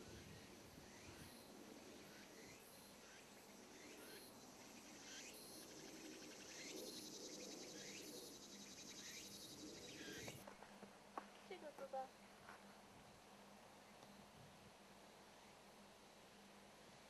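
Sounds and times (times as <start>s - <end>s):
insects trilling: 0.0s - 10.4s
short insect call: 0.0s - 10.4s.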